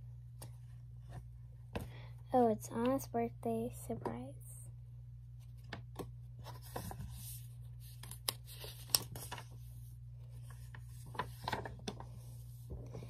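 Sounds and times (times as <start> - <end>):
steady low hum: 0.0 - 13.0
book pages rustling: 5.4 - 13.0.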